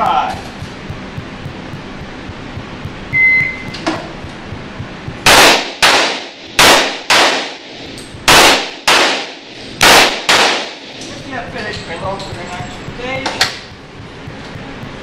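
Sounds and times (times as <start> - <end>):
shot timer beep: 0.8 - 3.8
pistol shots echoing: 5.2 - 7.7, 8.3 - 11.0.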